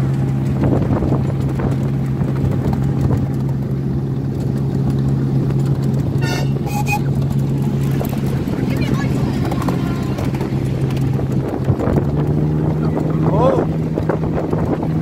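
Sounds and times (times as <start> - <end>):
locomotive engine hum: 0.0 - 15.0
brief high-pitched sound: 6.2 - 7.1.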